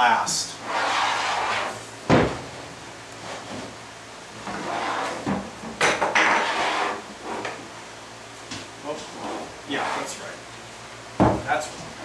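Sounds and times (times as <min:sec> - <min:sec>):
wood sliding scrape: 0:00.6 - 0:01.9, 0:04.4 - 0:05.4, 0:06.2 - 0:07.6, 0:09.0 - 0:10.2.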